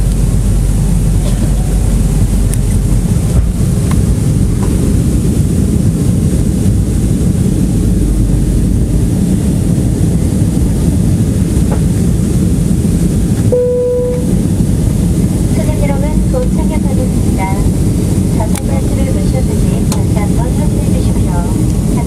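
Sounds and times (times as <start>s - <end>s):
airliner engines rumbling: 0.0s - 22.0s
single steady tone: 13.5s - 14.4s.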